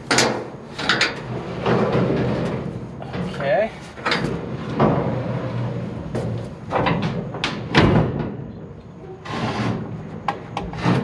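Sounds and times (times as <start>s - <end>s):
plastic scraping over ramp: 0.8s - 7.3s, 9.1s - 11.0s.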